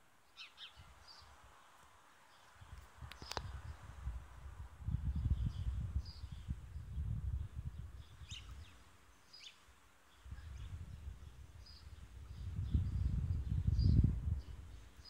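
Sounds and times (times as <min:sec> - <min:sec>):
small birds chirping: 0:00.2 - 0:04.2, 0:04.8 - 0:15.0
wind buffeting microphone: 0:02.6 - 0:08.8, 0:10.2 - 0:15.0.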